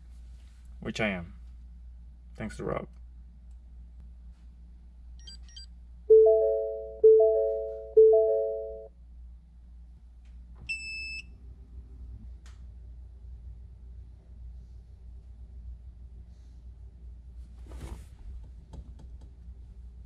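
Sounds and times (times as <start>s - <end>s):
car warning chime: 6.1s - 8.9s.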